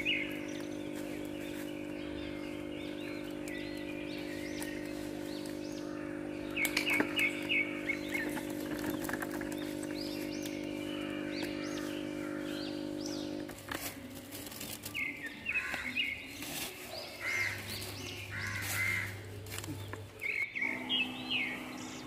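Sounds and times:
low hum: 0.0s - 15.3s, 17.2s - 22.0s
birds chirping: 0.0s - 22.0s
crows cawing: 5.6s - 8.1s, 10.8s - 13.0s, 15.5s - 16.0s, 17.2s - 19.4s.

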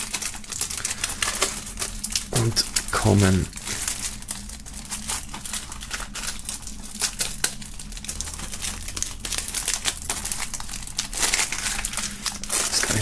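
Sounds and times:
plastic shrink-wrap crinkling: 0.0s - 13.0s.

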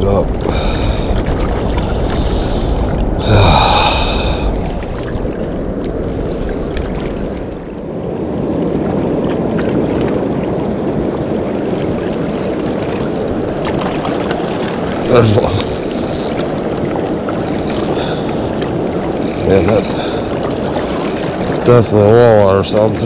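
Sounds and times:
water rushing from spillway: 9.5s - 23.0s.

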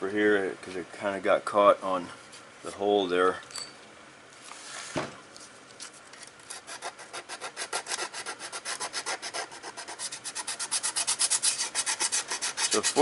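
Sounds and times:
hand sanding with sandpaper: 6.5s - 13.0s.

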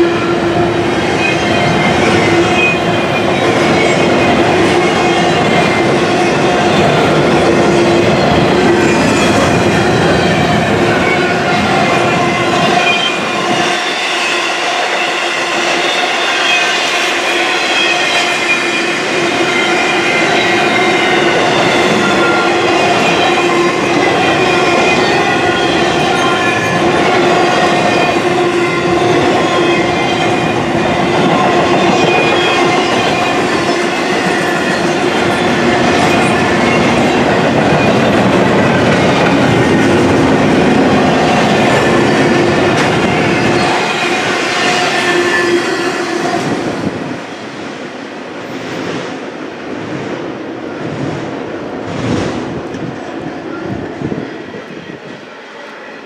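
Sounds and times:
train wheels clattering on rails: 0.0s - 47.5s, 50.8s - 53.2s.

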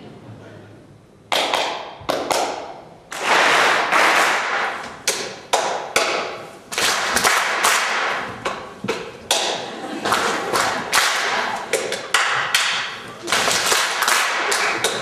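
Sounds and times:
rush of clapping: 6.7s - 8.2s, 9.3s - 15.0s
audience group claps: 6.7s - 8.3s, 9.3s - 15.0s.

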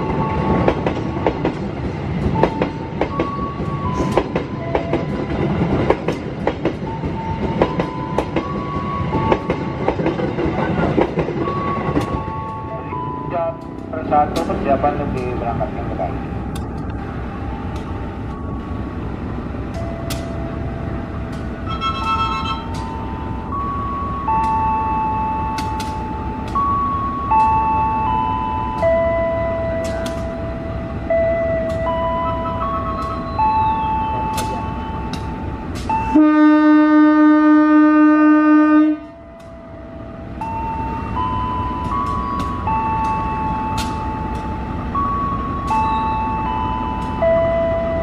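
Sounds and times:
train engine and wheel rumble: 0.0s - 48.0s
locomotive horn blast: 21.6s - 22.9s, 36.0s - 39.2s
sharp clicks: 25.6s - 26.6s.

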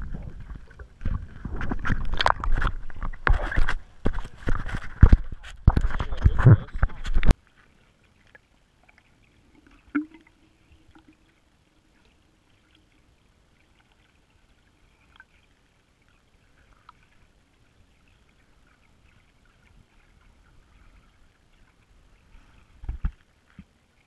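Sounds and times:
muffled underwater sound: 0.0s - 8.1s.

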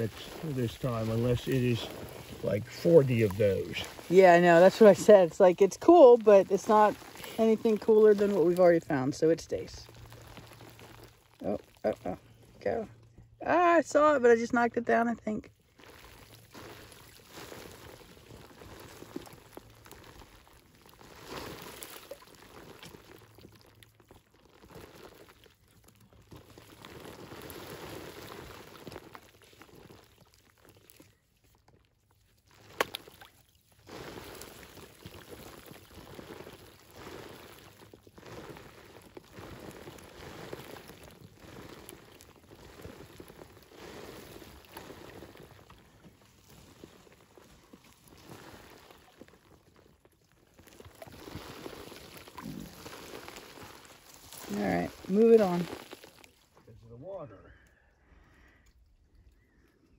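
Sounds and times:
fingers scraping dry soil: 0.0s - 11.8s, 33.8s - 49.9s, 50.6s - 56.3s
dirt trickling down: 0.0s - 12.4s, 15.7s - 56.7s.

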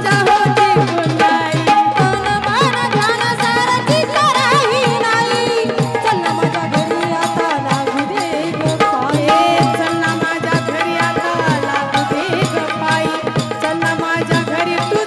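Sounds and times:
fast steady drum beat: 0.0s - 15.0s
woman singing into a microphone: 0.0s - 15.0s
held instrumental tones: 1.8s - 4.4s.

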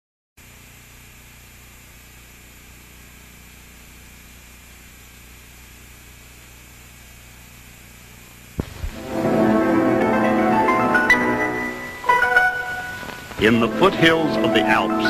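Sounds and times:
tape hiss and hum: 0.4s - 15.0s
sharp pops: 8.6s - 9.0s.

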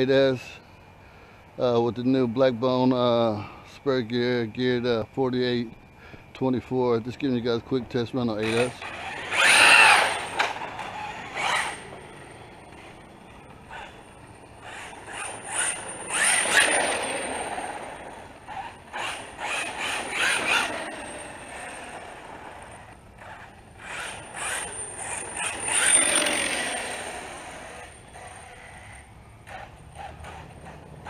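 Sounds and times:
rc car motor passing: 8.3s - 31.0s.

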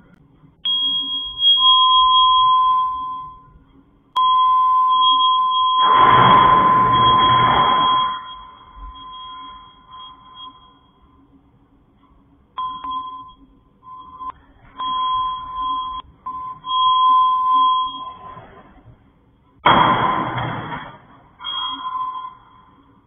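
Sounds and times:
high electronic beeping: 4.2s - 10.9s, 12.6s - 18.2s
loud burst of noise: 5.8s - 9.5s, 19.6s - 22.2s.

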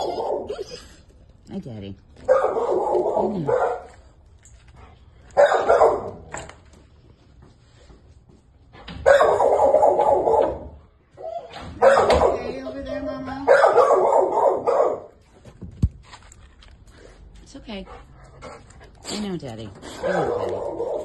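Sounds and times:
dog barking loudly: 0.0s - 0.6s, 2.2s - 3.9s, 5.4s - 6.3s, 9.0s - 10.8s, 11.8s - 12.5s, 13.4s - 15.2s, 20.0s - 21.0s.

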